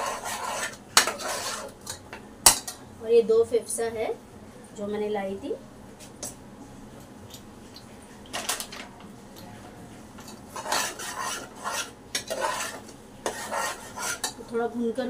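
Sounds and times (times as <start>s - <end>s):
ladle scraping pot: 0.0s - 2.0s, 10.2s - 14.4s.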